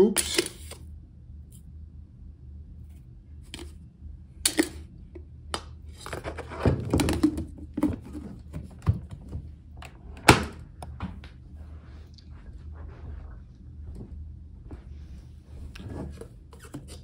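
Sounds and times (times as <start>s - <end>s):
scoop scraping metal can: 0.2s - 0.8s.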